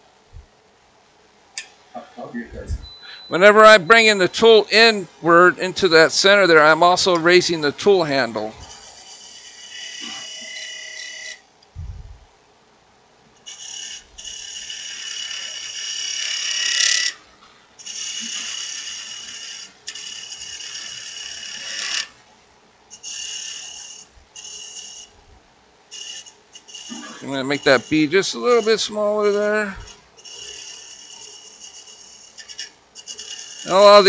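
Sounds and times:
lathe gouge shaving wood: 0:08.4 - 0:11.4, 0:13.5 - 0:17.2, 0:17.8 - 0:22.1, 0:23.0 - 0:25.1, 0:25.9 - 0:34.0.

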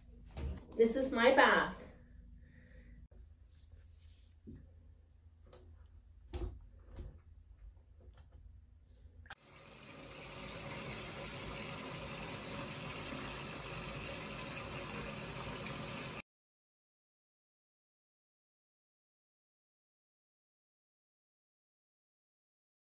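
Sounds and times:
water running into bathtub: 0:09.3 - 0:16.2.

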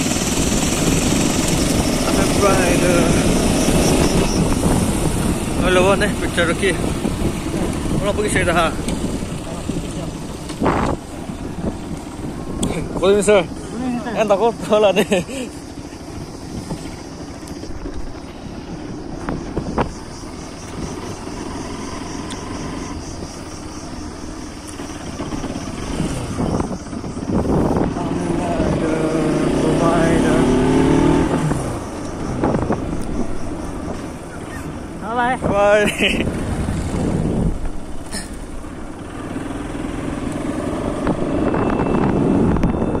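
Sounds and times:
motorcycle engine running: 0:00.0 - 0:43.0.

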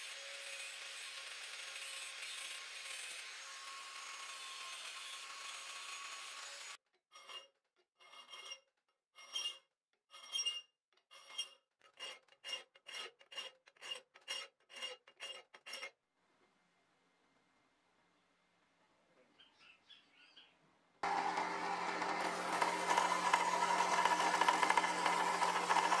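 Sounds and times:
angle grinder cutting steel: 0:00.0 - 0:06.8, 0:21.0 - 0:26.0
file rasping on steel: 0:00.0 - 0:16.0, 0:22.2 - 0:26.0.

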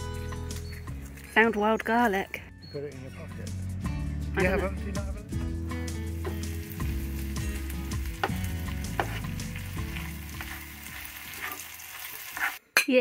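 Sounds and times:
food sizzling in a frying pan: 0:05.9 - 0:12.6
utensil scraping a pan: 0:08.2 - 0:12.6.

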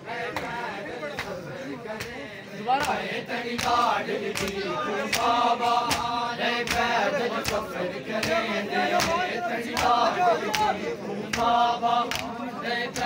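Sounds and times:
men chanting together: 0:00.0 - 0:13.0
chest beating slaps: 0:02.8 - 0:03.0, 0:03.6 - 0:12.3.

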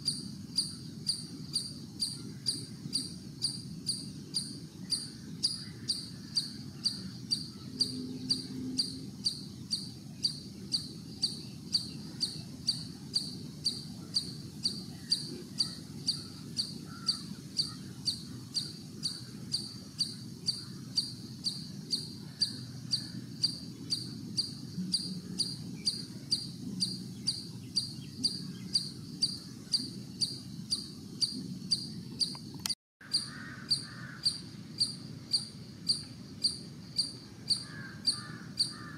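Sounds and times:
cricket chirping: 0:00.0 - 0:38.9.

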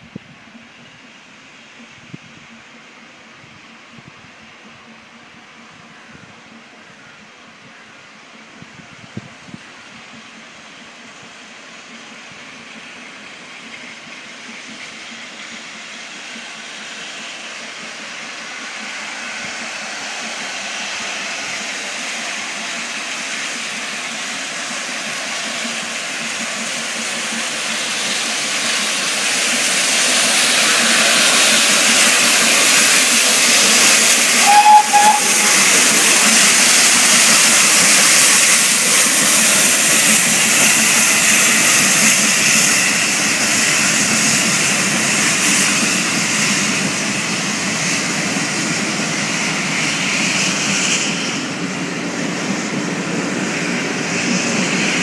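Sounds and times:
steam locomotive approaching: 0:00.0 - 0:55.0
steam whistle toot: 0:32.3 - 0:37.4.

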